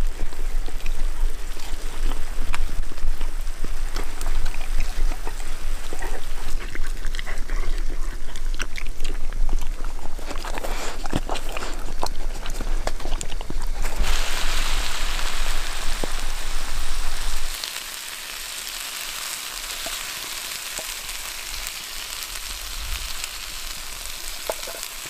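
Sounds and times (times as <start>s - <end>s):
puppy chewing and smacking: 0.0s - 14.1s
rain pattering: 13.6s - 18.7s, 19.6s - 25.0s.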